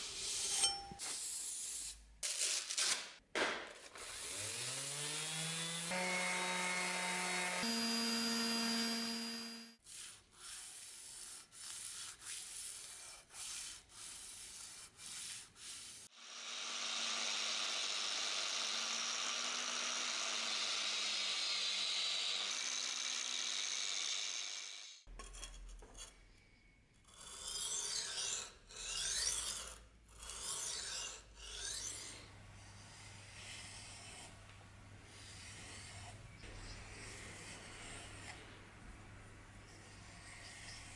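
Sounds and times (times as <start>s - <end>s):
electric disc sander: 4.2s - 9.8s, 16.2s - 25.0s
hand sanding on steel blade: 9.8s - 16.1s.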